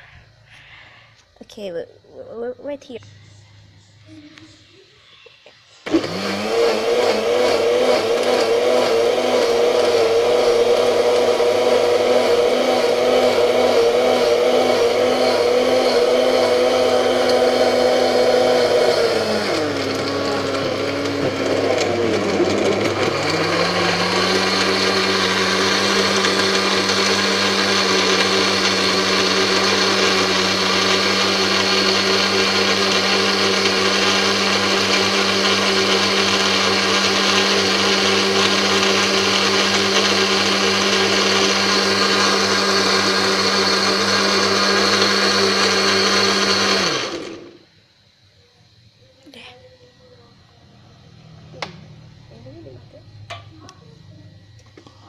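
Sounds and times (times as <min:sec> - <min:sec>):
blender motor whining: 0:05.8 - 0:47.7.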